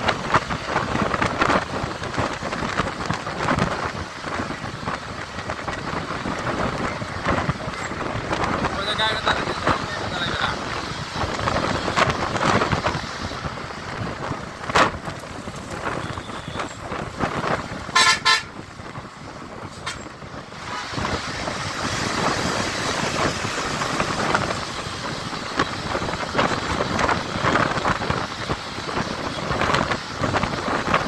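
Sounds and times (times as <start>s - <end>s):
bus traffic noise: 0.0s - 31.0s
wind on microphone: 0.0s - 31.0s
vehicle horn: 16.0s - 16.8s, 17.9s - 18.6s, 19.8s - 20.1s.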